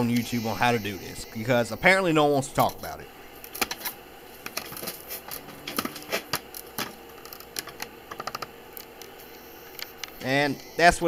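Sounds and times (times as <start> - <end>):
faint steady background noise: 0.0 - 11.0.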